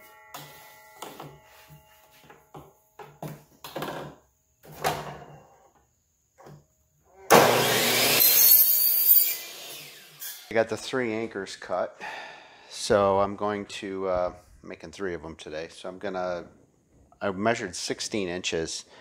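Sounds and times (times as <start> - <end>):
miter saw cutting pipe: 7.3 - 10.5.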